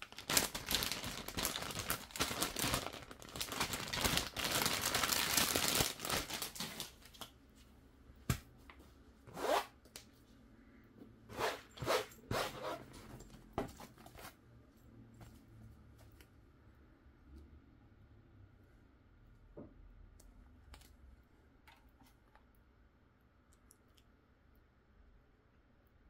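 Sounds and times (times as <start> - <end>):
packaging sleeve rustling: 0.0 - 7.3.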